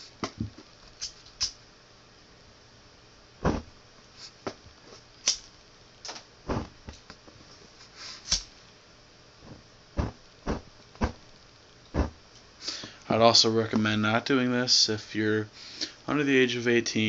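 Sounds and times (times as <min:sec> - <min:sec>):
flint wheel scraping hiss: 0:07.8 - 0:08.5.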